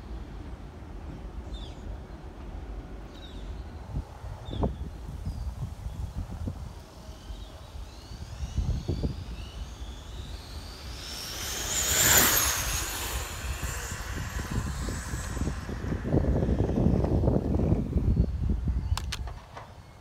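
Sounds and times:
wind rumble on microphone: 0:00.0 - 0:20.0
rc car motor whine passing: 0:06.9 - 0:18.7.

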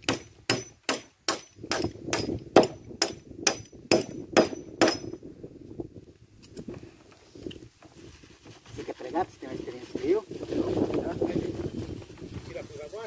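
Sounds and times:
hammer striking nail into wood: 0:00.0 - 0:05.2.

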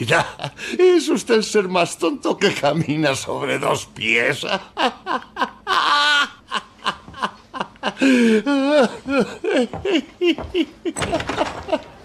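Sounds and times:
man laughing hard: 0:04.5 - 0:12.0.

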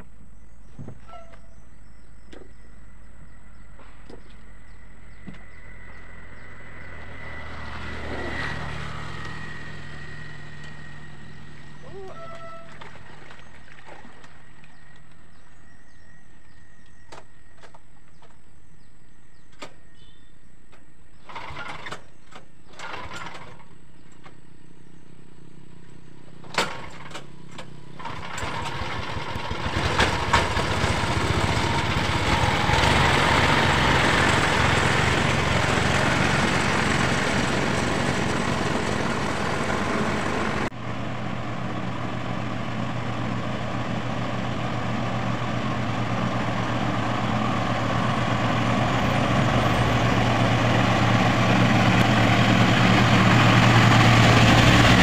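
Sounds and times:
propeller rush: 0:03.5 - 0:15.2, 0:27.9 - 0:55.0
small airboat engine revving: 0:05.1 - 0:14.6, 0:21.2 - 0:23.7, 0:27.8 - 0:55.0.

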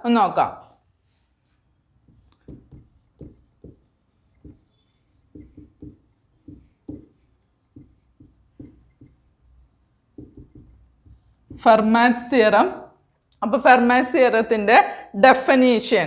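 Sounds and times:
marker writing on whiteboard: 0:00.9 - 0:12.0.

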